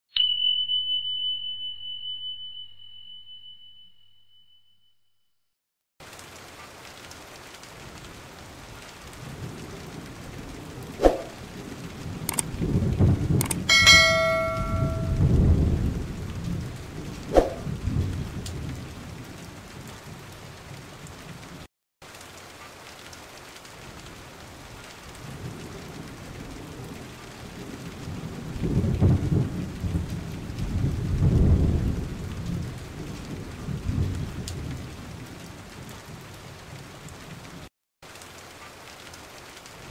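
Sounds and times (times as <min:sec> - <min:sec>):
bell-like ring: 0:00.2 - 0:04.9, 0:13.7 - 0:15.3
steady rain: 0:06.0 - 0:39.9
thunder rolling: 0:09.2 - 0:20.8, 0:25.2 - 0:37.4
sharp clicks: 0:13.4 - 0:13.7.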